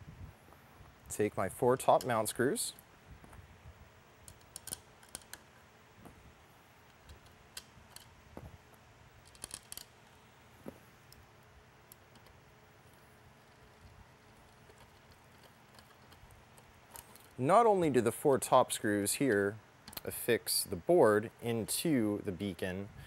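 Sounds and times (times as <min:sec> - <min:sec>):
small screws clicking: 0:04.2 - 0:05.5, 0:06.9 - 0:08.2, 0:09.2 - 0:10.2, 0:11.9 - 0:17.4.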